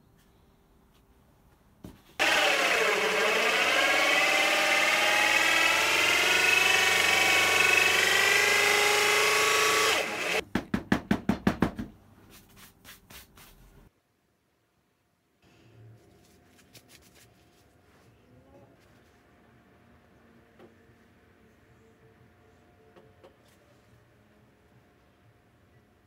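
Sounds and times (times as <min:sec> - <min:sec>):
electric drill with hole saw: 0:02.2 - 0:10.4.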